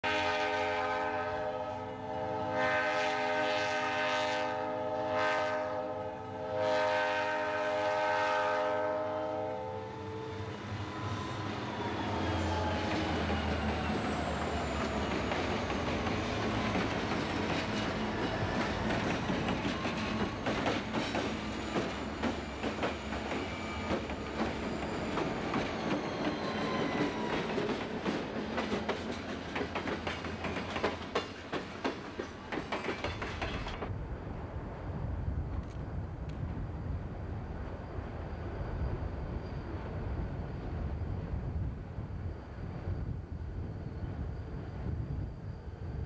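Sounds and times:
locomotive air horn blasts: 0.0s - 10.4s
wheels clicking over rail joints: 12.8s - 33.9s.

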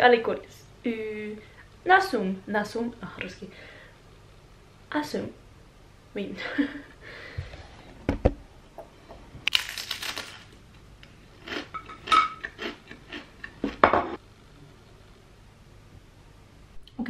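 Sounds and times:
crispbread crunching: 9.5s - 10.6s
dishes clinking: 11.7s - 12.6s, 13.8s - 14.2s.

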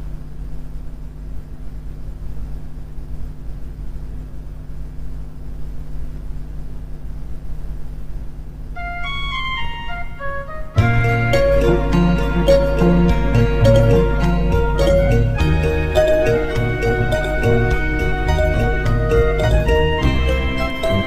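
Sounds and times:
low steady hum: 0.0s - 21.0s
karaoke backing track: 8.8s - 21.0s.

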